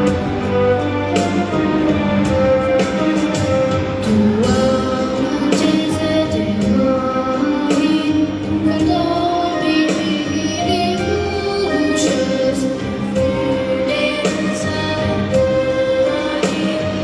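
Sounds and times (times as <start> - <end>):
instrumental accompaniment: 0.0 - 17.0
boy singing into a microphone: 4.1 - 15.5.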